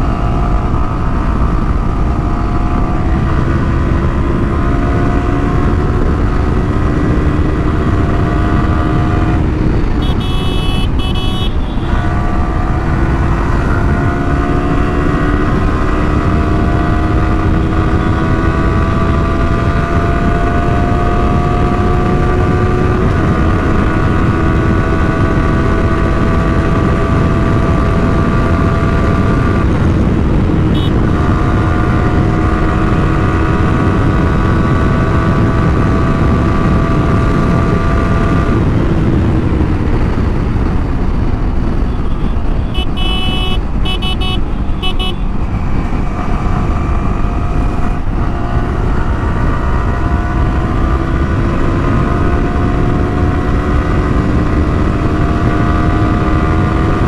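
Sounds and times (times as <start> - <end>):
motorcycle engine running: 0.0 - 57.0
wind rush: 0.0 - 57.0
vehicle horn blasts: 10.0 - 12.1, 30.7 - 31.0, 41.9 - 45.3.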